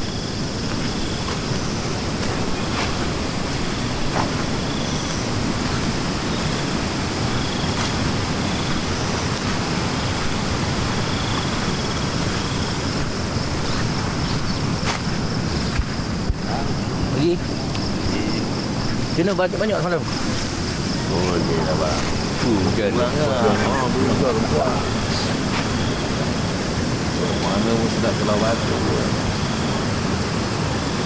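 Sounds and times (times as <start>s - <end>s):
fast-flowing river rushing: 0.0s - 17.6s.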